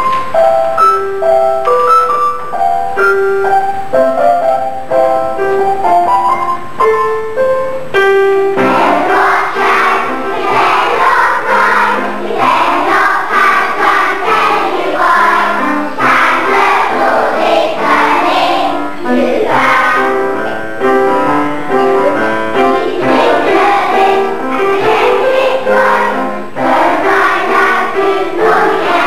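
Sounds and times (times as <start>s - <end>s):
electronic keyboard melody: 0.0s - 29.0s
children's choir singing: 8.5s - 29.0s.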